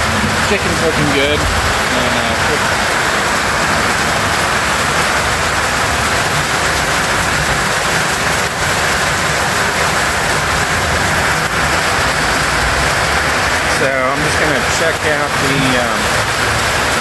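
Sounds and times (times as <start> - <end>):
heavy rain on a metal roof: 0.0 - 17.0.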